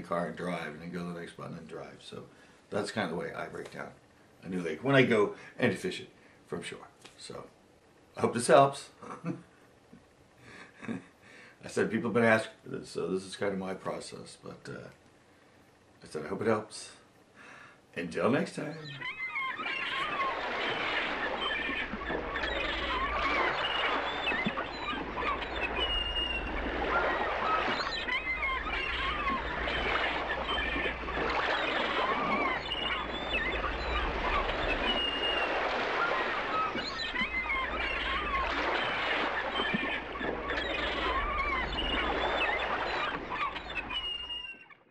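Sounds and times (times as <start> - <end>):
birds chirping and whistling: 18.6 - 44.9.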